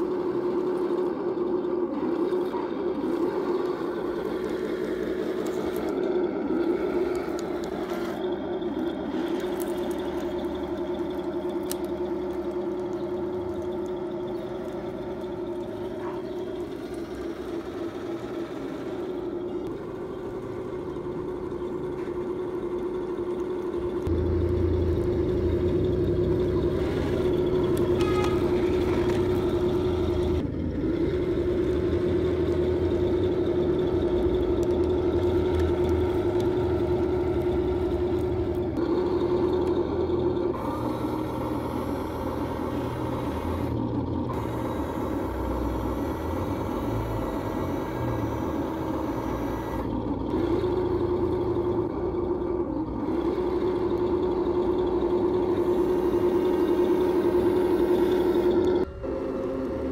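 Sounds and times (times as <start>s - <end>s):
toy tank mechanical whine: 0.0s - 59.9s
deep rumble: 19.2s - 40.8s.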